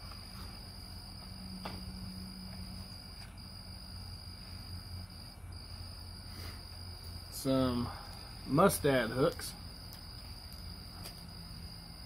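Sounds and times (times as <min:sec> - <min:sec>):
crickets trilling: 0:00.0 - 0:12.0.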